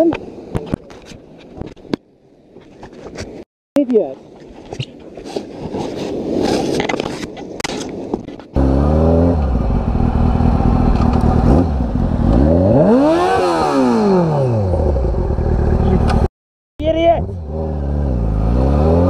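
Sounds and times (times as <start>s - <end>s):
motorcycle engine revving: 8.6s - 16.3s, 17.2s - 19.0s.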